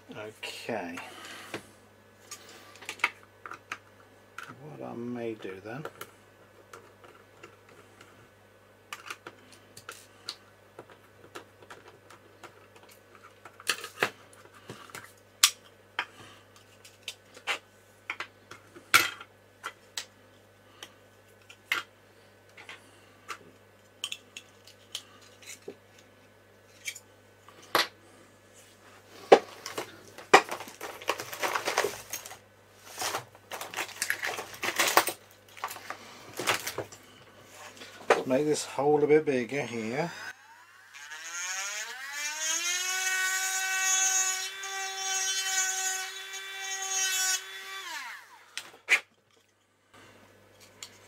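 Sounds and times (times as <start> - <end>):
rummaging clatter: 29.3 - 38.3.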